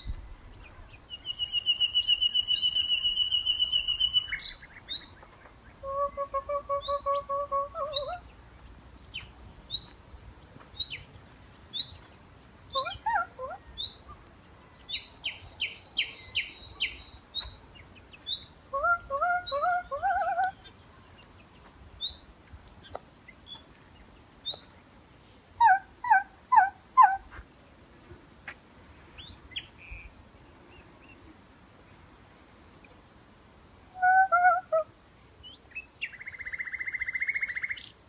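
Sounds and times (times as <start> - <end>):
nightingale singing: 0.0 - 27.3, 29.2 - 31.3, 34.0 - 38.0
woman imitating birdsong: 5.8 - 8.2.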